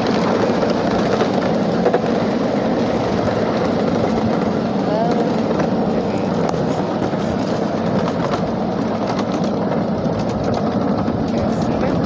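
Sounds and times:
train wheels rolling on rail: 0.0 - 12.0.

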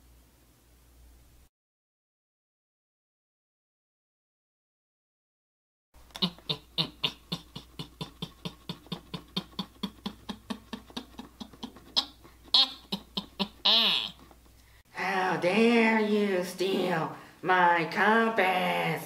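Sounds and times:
creepy voiced laugh: 6.1 - 14.2.

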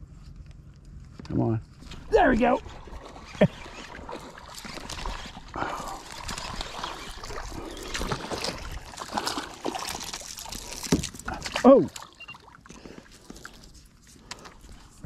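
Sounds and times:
fish thrashing and splashing water: 1.8 - 14.6.

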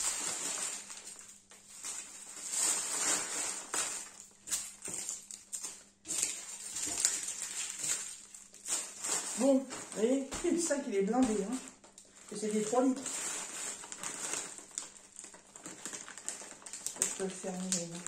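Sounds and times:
plastic crinkling and rustling: 0.0 - 18.0.

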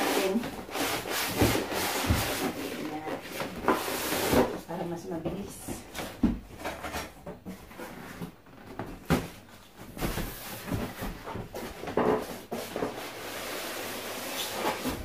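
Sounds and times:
cardboard box knocks and scraping: 0.9 - 4.6.

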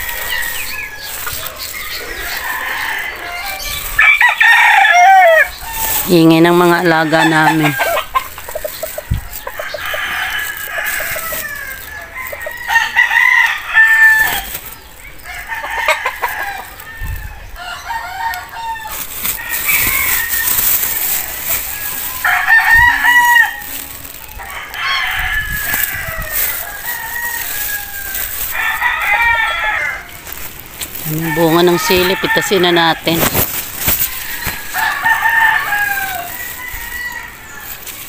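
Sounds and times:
chickens clucking: 0.0 - 4.0, 5.5 - 13.4
roosters crowing: 0.0 - 38.0.

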